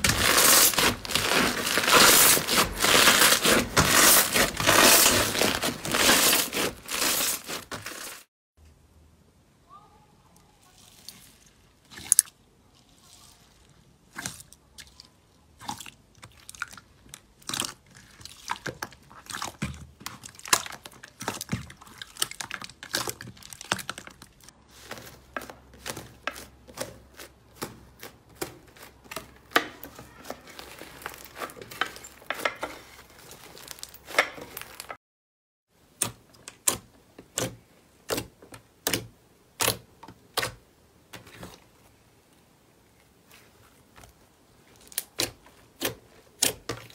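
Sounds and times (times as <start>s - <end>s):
slime crackling and popping: 0.0s - 8.2s.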